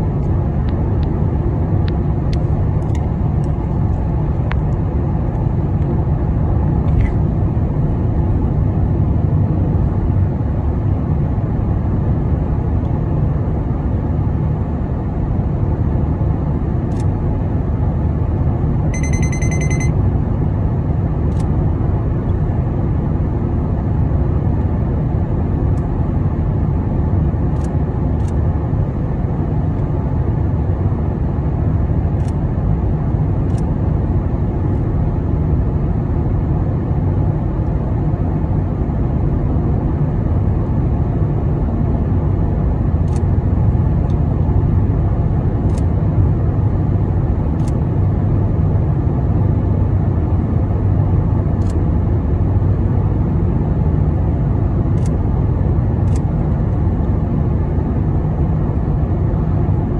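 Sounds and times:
high electronic beep: 0:19.0 - 0:20.0.

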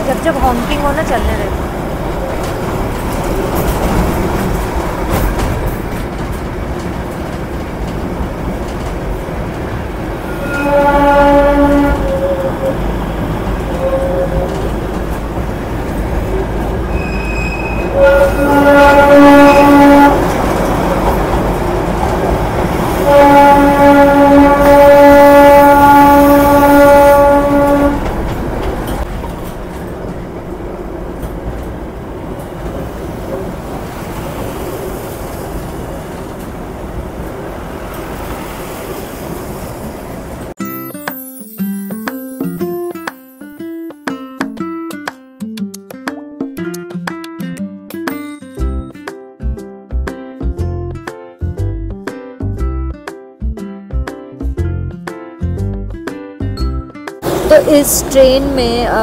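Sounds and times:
train rumble and clatter: 0:00.0 - 0:40.6, 0:57.2 - 0:59.0
diesel locomotive horn: 0:10.2 - 0:14.9, 0:16.3 - 0:20.4, 0:22.9 - 0:28.2.

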